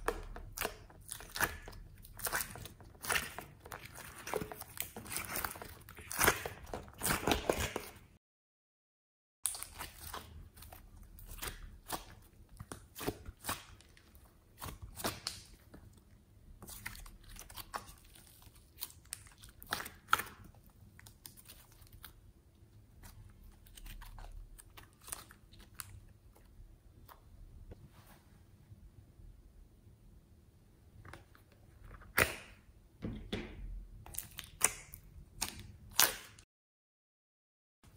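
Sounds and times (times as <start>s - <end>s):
slime squished by hand: 0.0s - 8.1s.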